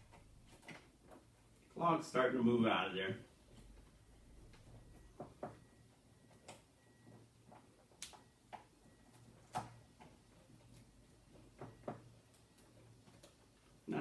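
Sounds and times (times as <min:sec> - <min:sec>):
faint clicks and taps: 0:03.5 - 0:13.8.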